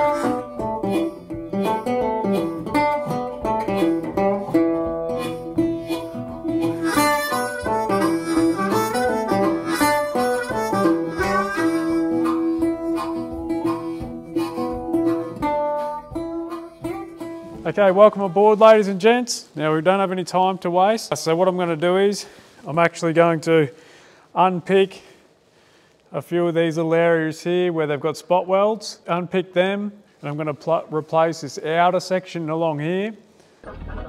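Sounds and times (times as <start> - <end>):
sustained melody line: 0.0 - 17.7
quick picked notes: 0.0 - 18.8.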